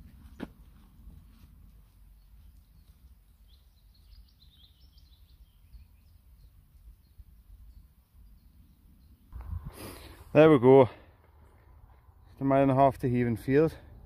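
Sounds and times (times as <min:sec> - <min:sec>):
high bird chirps: 0:02.2 - 0:09.4
steady low rumble: 0:09.3 - 0:10.3.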